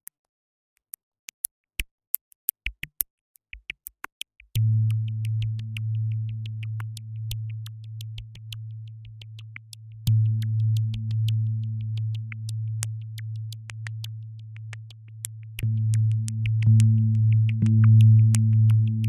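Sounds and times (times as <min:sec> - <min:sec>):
low synth bass note: 0:15.6 - 0:19.0.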